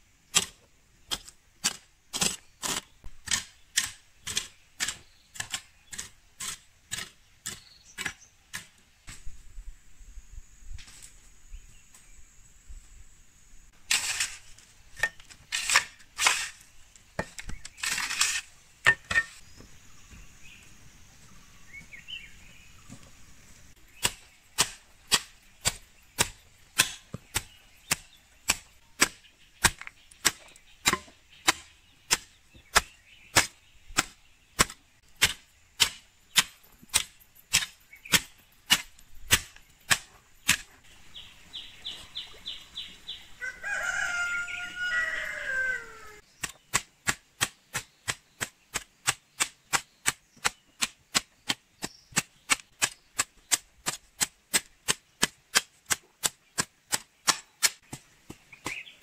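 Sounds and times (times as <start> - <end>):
hoe chopping into soil: 0.3 - 9.3, 13.9 - 16.6, 17.2 - 19.4, 23.9 - 40.8, 46.3 - 59.0
rooster crowing: 43.4 - 46.2.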